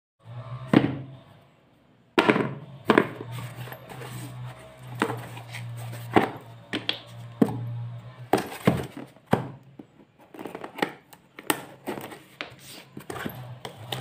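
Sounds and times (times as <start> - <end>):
box knocking: 2.2 - 3.2, 8.3 - 10.8
packaging rustling and scraping: 2.9 - 14.0.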